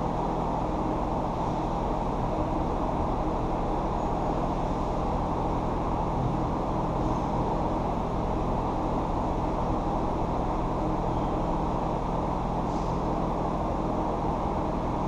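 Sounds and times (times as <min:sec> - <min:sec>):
faint hum: 0:05.8 - 0:07.7
low rumble: 0:05.8 - 0:07.7.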